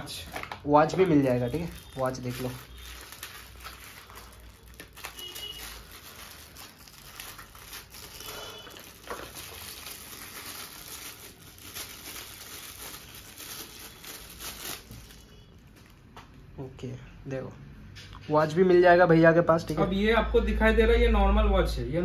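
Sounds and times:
rustling and crinkling handling: 0.0s - 16.4s.

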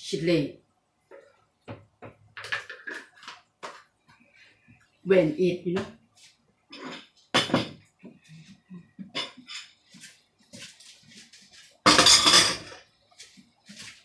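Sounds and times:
dishes and cutlery clattering: 2.4s - 3.4s, 6.7s - 7.9s, 9.0s - 9.8s, 11.8s - 12.9s.

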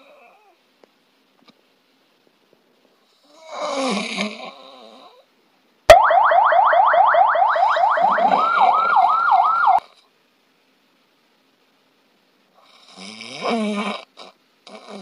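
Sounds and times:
person snoring loudly: 3.2s - 5.2s, 12.6s - 15.0s
electronic siren whooping: 5.9s - 9.8s.

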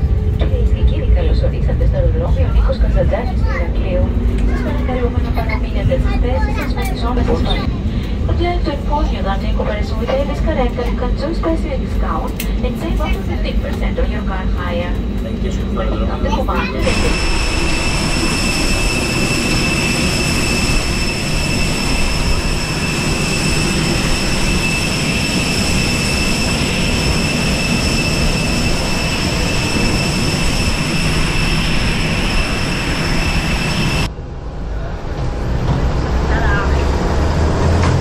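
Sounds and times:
airplane cabin rushing noise: 0.0s - 34.1s
high steady whine: 0.0s - 34.4s.

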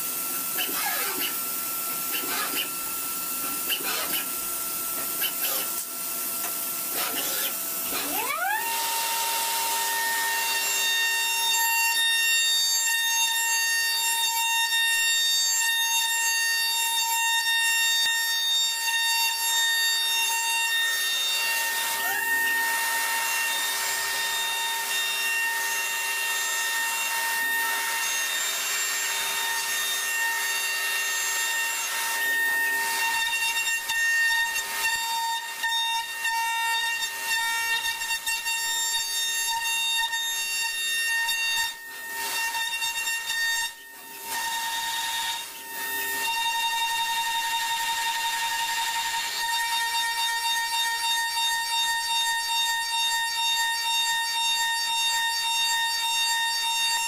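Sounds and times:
milling machine spindle whine: 0.0s - 11.5s, 19.5s - 51.0s.

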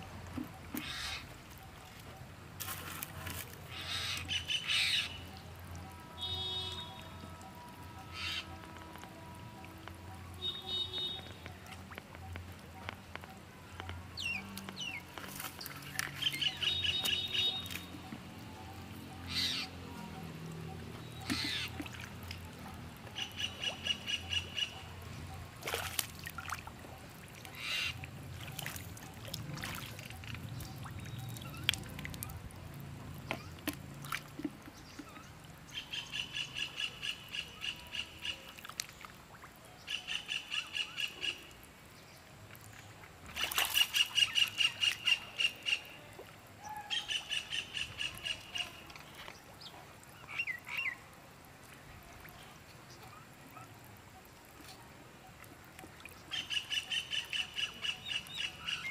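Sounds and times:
bird harsh repeated calls: 0.8s - 1.7s, 3.7s - 5.2s, 8.1s - 8.7s, 16.2s - 17.9s, 19.2s - 19.8s, 21.0s - 21.8s, 27.5s - 28.8s.

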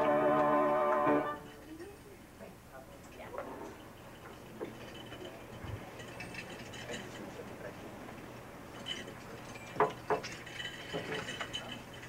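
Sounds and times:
congregation murmuring and shuffling: 0.0s - 12.0s
light clinks: 3.0s - 12.0s.

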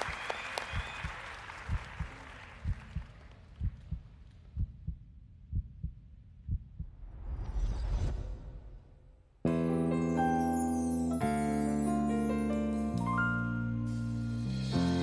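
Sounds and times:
studio applause: 0.0s - 4.0s
heartbeat-like thumps: 1.7s - 7.4s.

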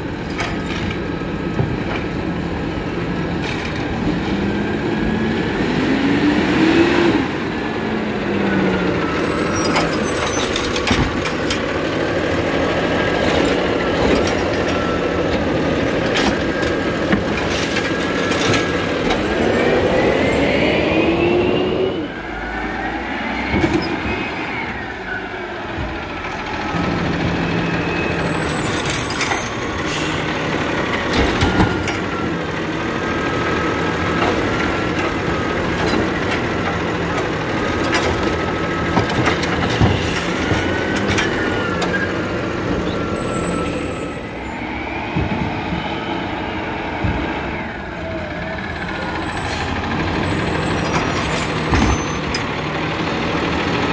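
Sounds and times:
truck pulling away: 1.0s - 53.9s
diesel truck engine revving: 2.4s - 24.6s, 29.6s - 53.9s.

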